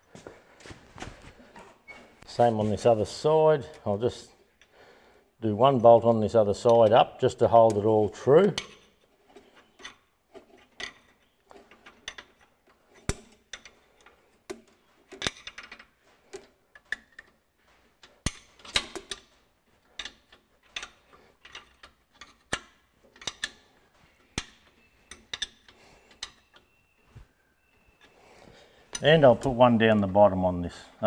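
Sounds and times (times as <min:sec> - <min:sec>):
spanner clicking on a bolt: 0:20.0 - 0:23.6, 0:24.3 - 0:26.7.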